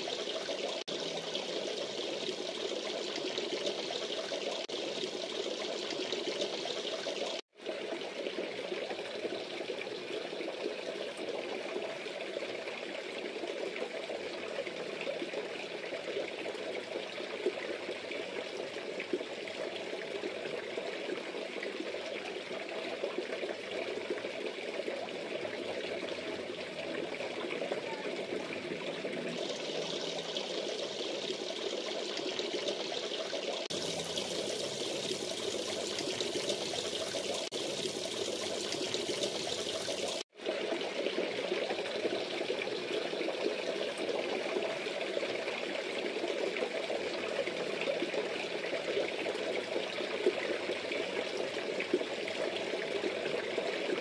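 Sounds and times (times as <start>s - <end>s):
water pouring into pond: 0.0s - 54.0s.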